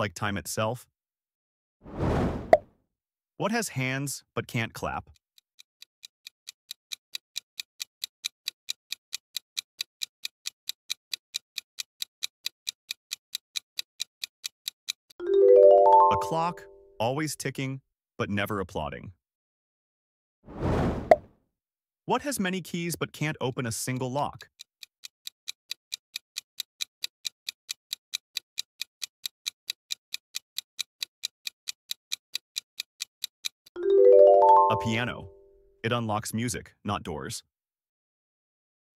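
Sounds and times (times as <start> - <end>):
clock ticking: 5.1 - 16.6, 23.5 - 35.2
countdown timer ticking: 15.2 - 16.8, 33.7 - 35.3.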